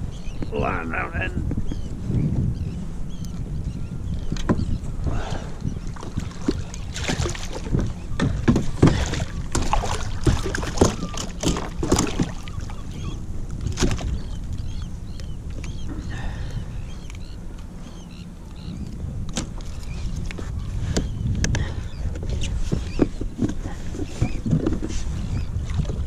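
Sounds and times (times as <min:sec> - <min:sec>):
knocks against kayak: 0:08.2 - 0:12.4.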